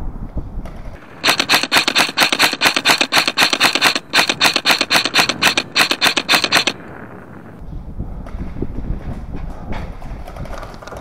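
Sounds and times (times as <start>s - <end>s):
rapid sharp clicks: 1.0s - 6.9s.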